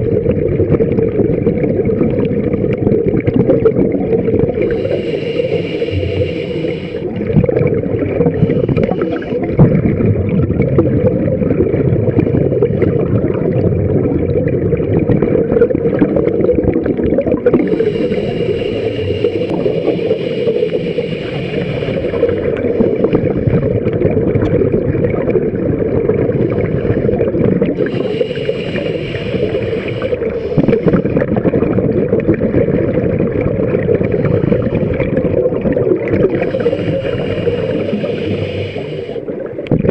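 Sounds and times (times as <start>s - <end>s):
underwater rumble and bubbles: 0.0s - 39.9s
scuba regulator hissing inhale: 4.6s - 7.2s, 8.2s - 9.6s, 17.5s - 23.8s, 26.4s - 31.3s, 33.8s - 35.1s, 36.3s - 39.5s.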